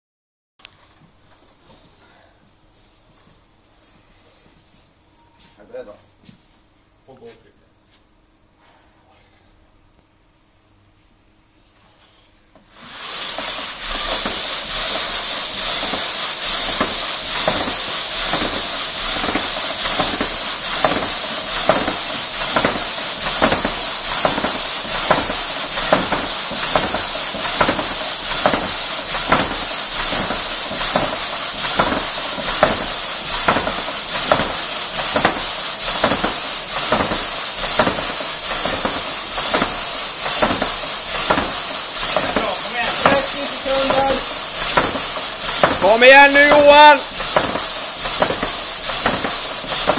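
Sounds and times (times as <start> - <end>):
fan flywheel rushing hiss: 11.9 - 49.9.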